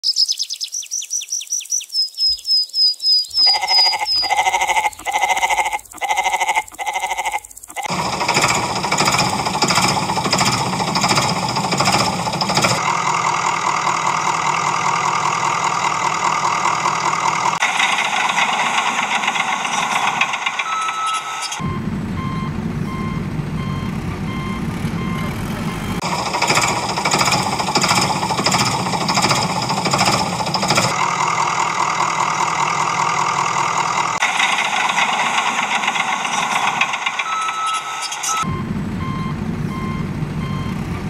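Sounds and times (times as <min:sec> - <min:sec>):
rapid high electronic chirps: 0:00.0 - 0:31.8, 0:32.7 - 0:38.7
pulsing pitched tone: 0:03.3 - 0:13.7
rattling engine-like noise: 0:03.3 - 0:41.0.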